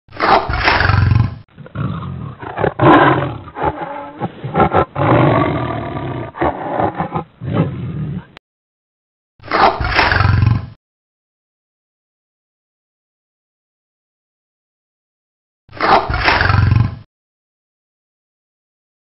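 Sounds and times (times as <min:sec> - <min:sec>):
tiger roaring and growling: 0:00.1 - 0:08.4, 0:09.5 - 0:10.7, 0:15.8 - 0:17.1.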